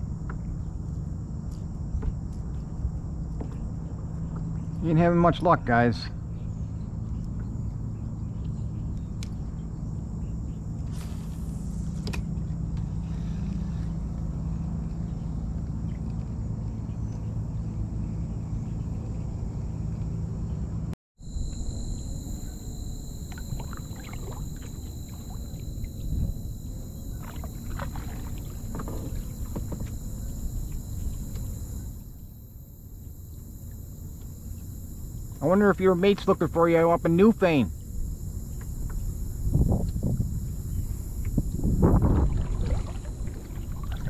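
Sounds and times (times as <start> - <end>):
water lapping and splashing: 23.3 - 25.8, 27.1 - 30.2, 41.8 - 44.0.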